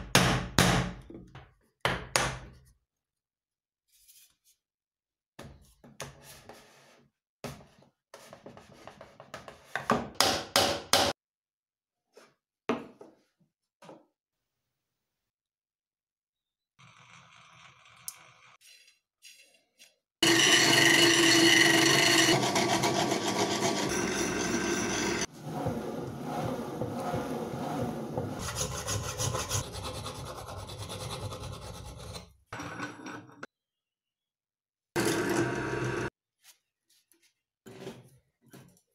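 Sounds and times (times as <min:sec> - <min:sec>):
file rasping on steel rod: 0:18.6 - 0:32.3
wood scraping on wood: 0:23.4 - 0:29.6.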